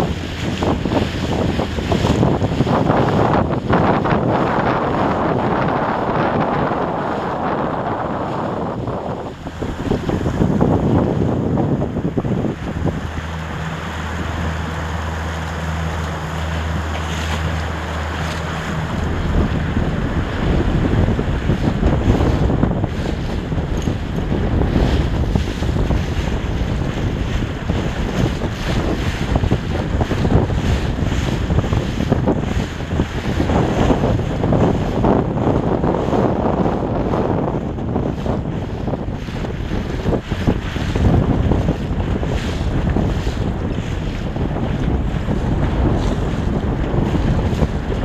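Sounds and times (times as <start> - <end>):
water rushing and splashing: 0.0 - 48.0
wind buffeting microphone: 0.0 - 48.0
low steady hum: 4.0 - 35.7.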